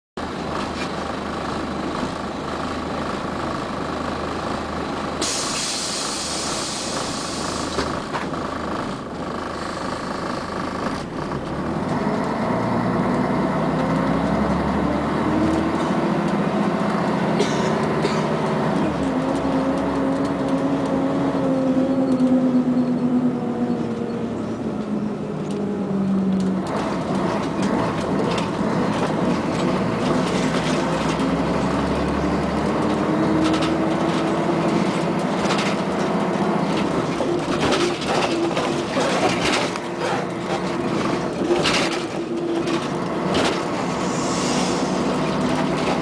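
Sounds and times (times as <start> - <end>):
bus diesel engine: 0.2 - 46.0
compressed air hiss: 5.2 - 7.6, 43.8 - 45.2.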